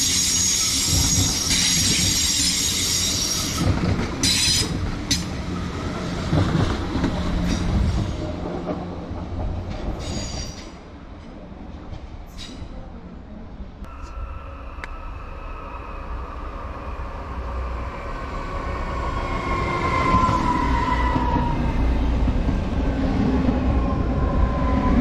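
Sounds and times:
train wheel squeal: 0.0 - 5.3, 10.0 - 10.8, 13.9 - 17.2
rumble of train wheels: 0.0 - 25.0.

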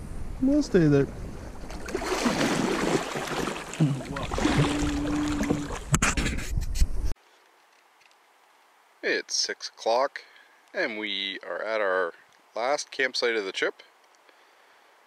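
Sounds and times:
wind on microphone: 0.0 - 3.0, 3.9 - 7.2
water splashing against canoe hull: 1.4 - 6.6.

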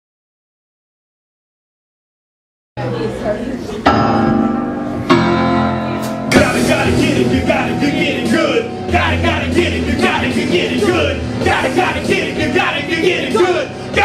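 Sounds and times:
crowd chatter: 2.8 - 14.0
band striking held chords: 3.9 - 14.0
live band playing: 4.2 - 14.0.

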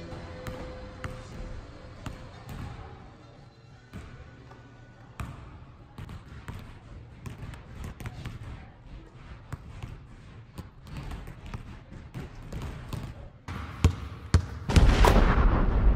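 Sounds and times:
basketball bouncing on hardwood floor: 10.6 - 14.8
loud rushing noise with bangs: 14.7 - 15.9.

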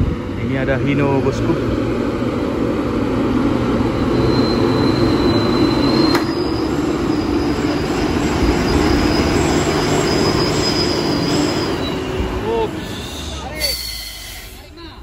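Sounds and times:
high thin brake squeal: 4.0 - 14.7.

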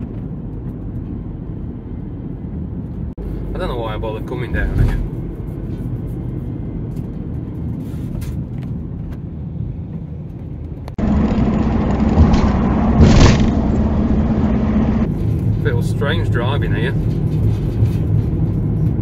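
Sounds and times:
road and engine noise in vehicle: 0.0 - 19.0
steady low hum: 10.6 - 15.8.

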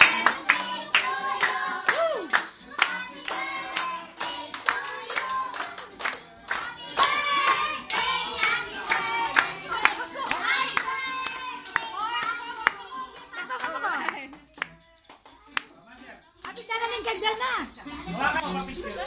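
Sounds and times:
group of people singing: 0.0 - 13.6
people clapping along: 0.0 - 15.8.

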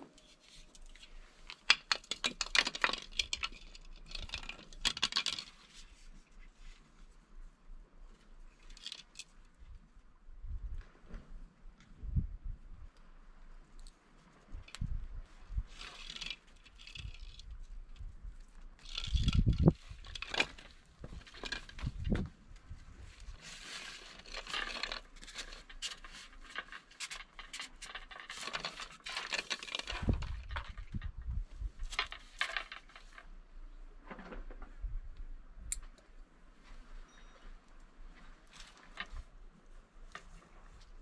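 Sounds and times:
fishing rod handling clicks and rustles: 0.1 - 6.9, 8.5 - 9.6, 13.8 - 15.0, 15.6 - 33.4, 35.7 - 41.0.

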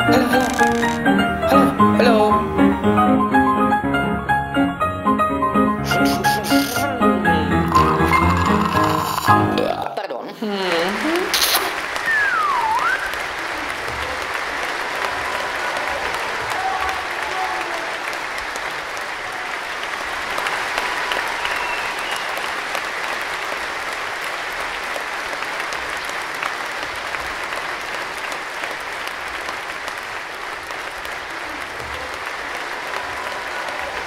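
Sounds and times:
audience applause: 0.0 - 2.7, 5.8 - 9.8, 10.5 - 34.0.

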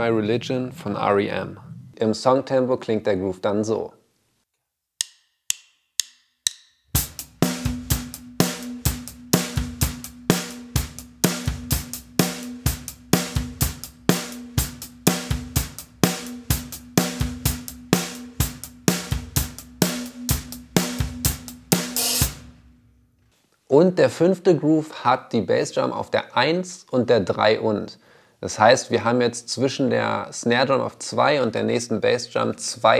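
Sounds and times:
drum kit rock beat: 6.4 - 22.8
cymbal hit: 7.0 - 22.8.

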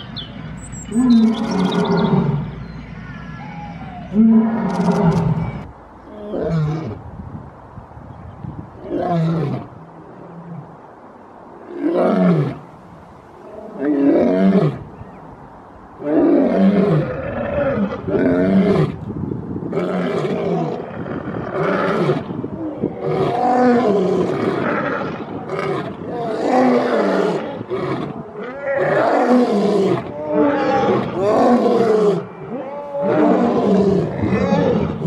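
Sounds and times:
lions roaring: 3.4 - 5.6, 23.0 - 35.0.

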